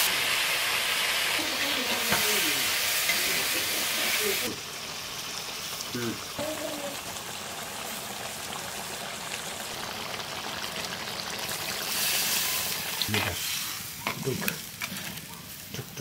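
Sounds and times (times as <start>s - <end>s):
curry sizzling in a pot: 0.0s - 16.0s
water hissing on hot pot: 0.0s - 16.0s.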